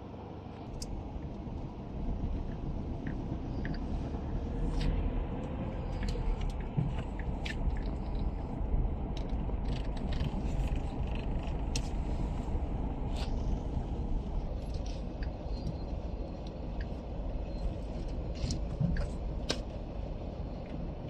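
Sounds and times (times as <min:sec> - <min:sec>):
tyre and engine rumble: 0:00.0 - 0:21.0
small clicks and ticks: 0:05.9 - 0:12.0.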